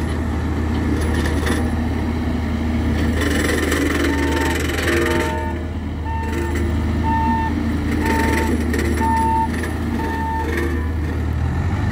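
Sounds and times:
diesel engine running: 0.0s - 11.9s
back-up alarm beeping: 4.2s - 10.9s.

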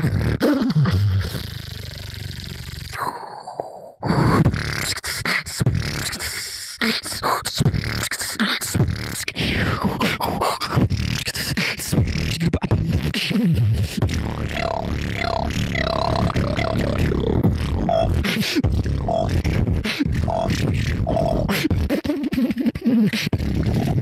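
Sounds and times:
beatboxing kick and snare: 0.0s - 3.0s, 4.1s - 24.0s
low bass hum: 14.0s - 21.5s.

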